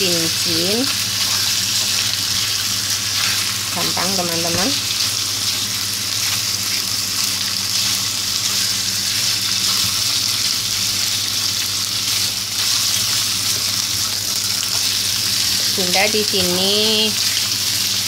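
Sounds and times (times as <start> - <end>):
meat sizzling in oil: 0.0 - 18.0
spatula moving meat in pan: 0.8 - 6.6.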